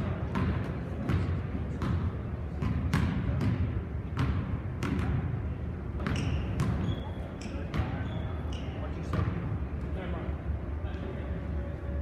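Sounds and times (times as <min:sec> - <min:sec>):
basketballs bouncing on gym floor: 0:00.0 - 0:09.6.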